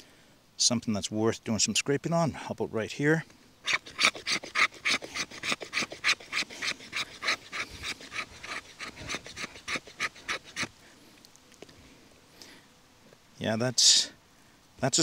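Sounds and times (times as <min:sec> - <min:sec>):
knife scraping wooden stick: 0:03.7 - 0:10.7.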